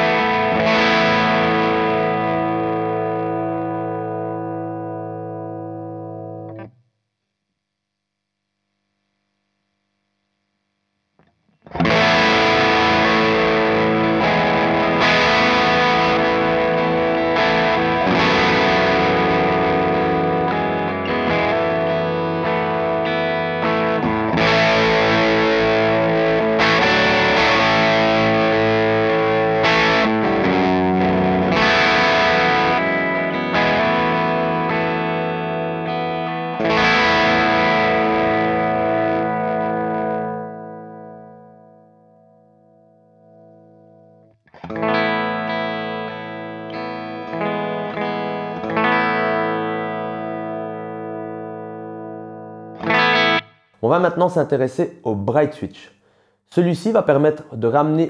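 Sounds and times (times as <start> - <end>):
distorted electric guitar chords: 0.0 - 6.8, 11.1 - 55.0.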